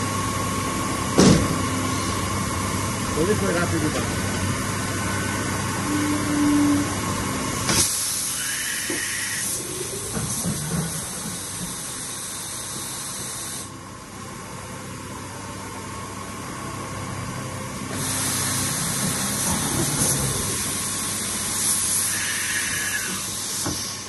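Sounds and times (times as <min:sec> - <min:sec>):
machine mechanical hum: 0:00.0 - 0:24.0
loud pneumatic hiss: 0:01.8 - 0:02.3, 0:07.6 - 0:13.8, 0:17.9 - 0:24.0.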